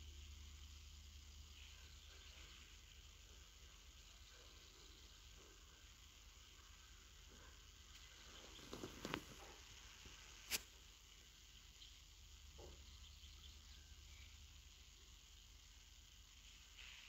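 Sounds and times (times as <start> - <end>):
faint outdoor hiss: 0.0 - 17.0
sharp click: 10.5 - 10.7.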